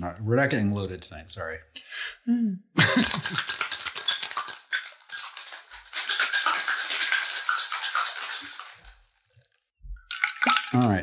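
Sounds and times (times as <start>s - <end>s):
cocktail shaker rattling with rice: 2.8s - 9.1s.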